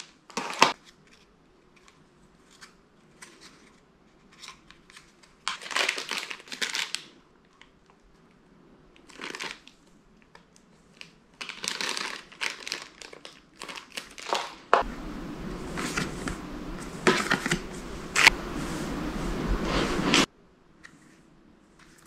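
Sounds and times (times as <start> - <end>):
plastic bags crinkling: 5.4 - 7.1, 9.0 - 9.9, 10.5 - 14.8.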